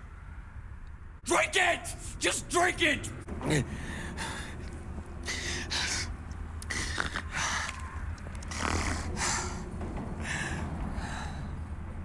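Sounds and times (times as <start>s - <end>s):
man breathing hard: 3.7s - 12.0s.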